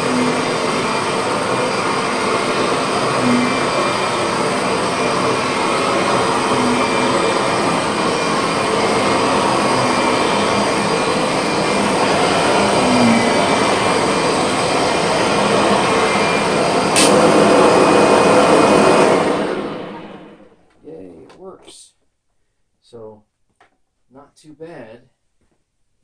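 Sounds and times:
vacuum cleaner on carpet: 0.0s - 20.6s.

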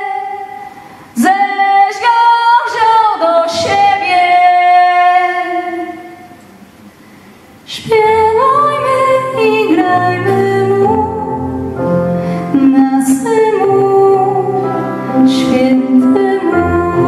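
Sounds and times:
woman singing carol: 1.2s - 6.3s, 7.7s - 11.5s, 12.6s - 17.0s.

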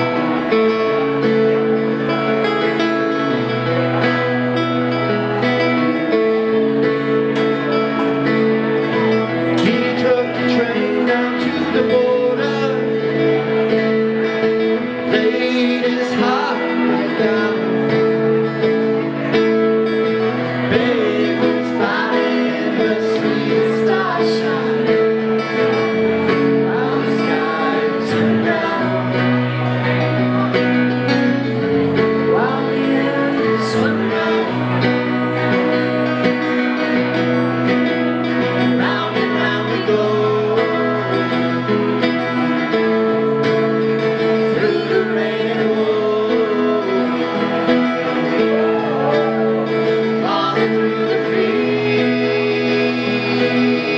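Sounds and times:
acoustic guitars playing: 0.0s - 53.9s
man singing: 8.3s - 53.9s
woman singing: 50.2s - 53.9s.

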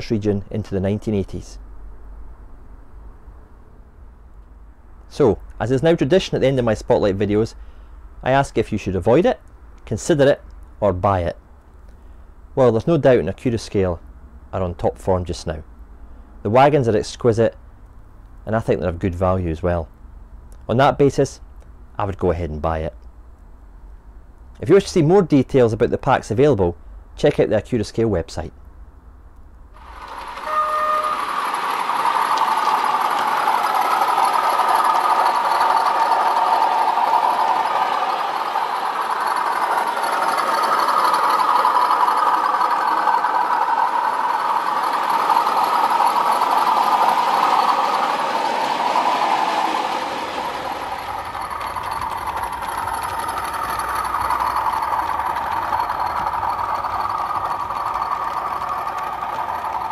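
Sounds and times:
model train whirring and rolling: 4.4s - 9.0s, 29.8s - 59.9s.

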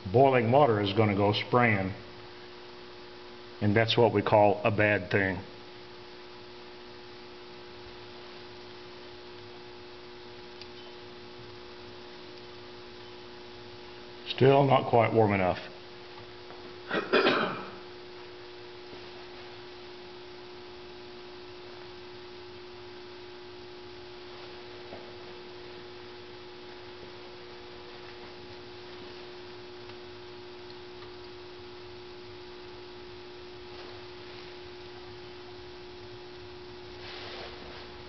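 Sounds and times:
steady hum: 0.0s - 38.0s.

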